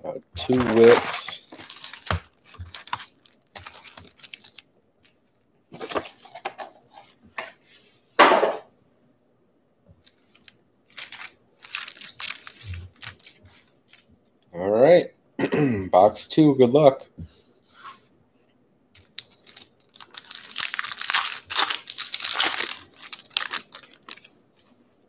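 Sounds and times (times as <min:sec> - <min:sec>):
plastic wrappers crinkling: 0:00.4 - 0:05.2, 0:05.8 - 0:07.2, 0:10.0 - 0:14.1, 0:19.0 - 0:24.7.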